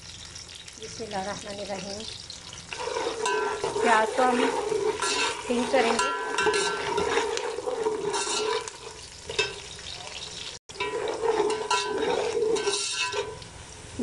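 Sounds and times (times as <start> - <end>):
onions sizzling in pot: 0.0 - 14.0
metal spoon scraping pot: 2.4 - 13.4.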